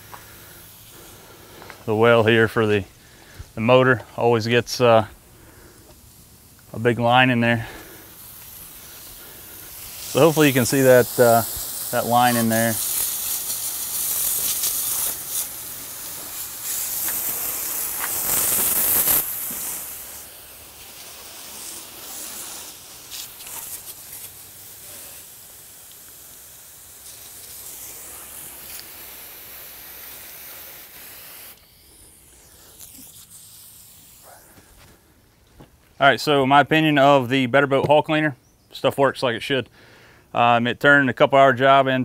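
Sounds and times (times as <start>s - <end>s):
faint outdoor background: 0.0s - 42.0s
hose spraying water on boat hull: 3.4s - 34.8s.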